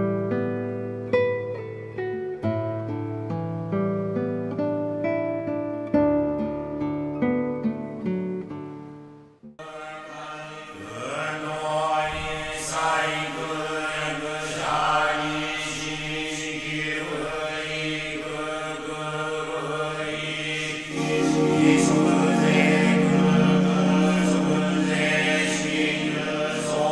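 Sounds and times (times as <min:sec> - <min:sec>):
monks chanting in monotone: 0:09.6 - 0:26.9.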